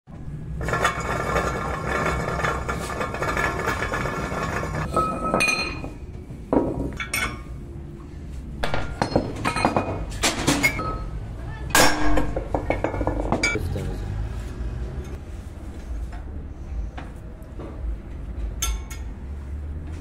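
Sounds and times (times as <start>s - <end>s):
brake disc grinding rattle: 0.5s - 4.9s
metallic ringing: 0.6s - 6.0s, 18.6s - 19.1s
sharp metal knocks: 11.7s - 13.6s.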